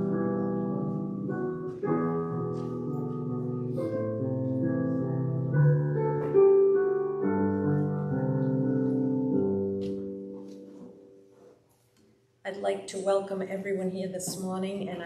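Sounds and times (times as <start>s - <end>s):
slow piano chords: 0.0s - 11.9s.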